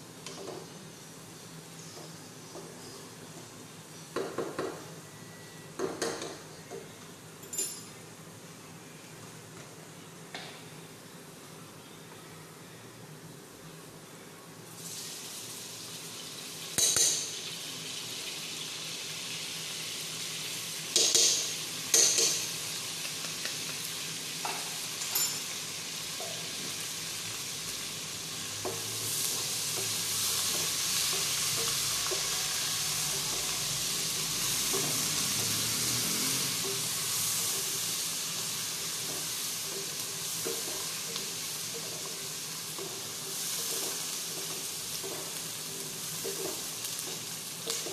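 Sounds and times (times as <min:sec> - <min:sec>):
onions sizzling in hot oil: 0:14.6 - 0:47.9.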